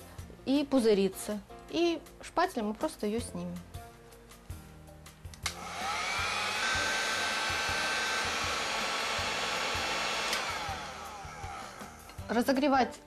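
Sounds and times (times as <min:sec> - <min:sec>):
heat gun switch click: 0:05.3 - 0:05.6, 0:10.2 - 0:10.6
heat gun fan whining: 0:05.4 - 0:12.2.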